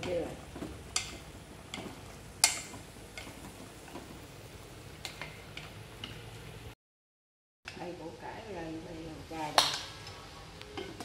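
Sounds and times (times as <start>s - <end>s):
chopsticks tapping a metal pot: 0.0s - 4.1s, 10.8s - 11.0s.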